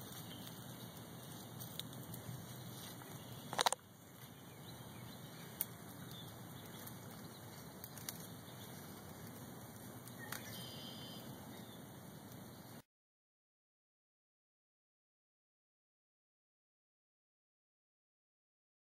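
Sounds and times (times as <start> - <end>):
faint outdoor hiss: 0.0 - 12.8
rustling crackle: 0.0 - 12.8
sharp click: 3.5 - 3.8.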